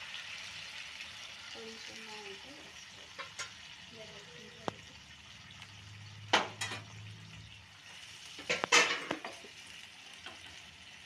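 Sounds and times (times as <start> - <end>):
low sizzle: 0.0 - 11.0
spatula stirring in a pan: 7.7 - 11.0
spatula scraping and knocking pan: 8.3 - 9.6.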